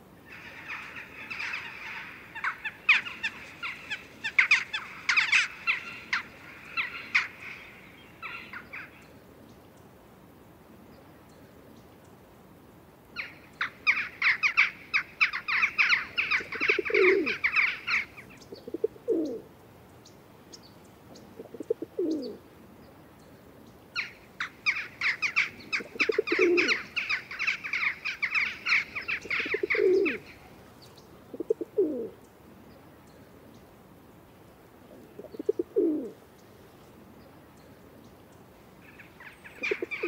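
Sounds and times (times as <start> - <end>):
pigeons cooing: 0.3 - 8.9, 13.8 - 19.5, 21.3 - 22.4, 24.0 - 30.6, 31.2 - 32.2, 34.9 - 36.2, 38.9 - 40.0.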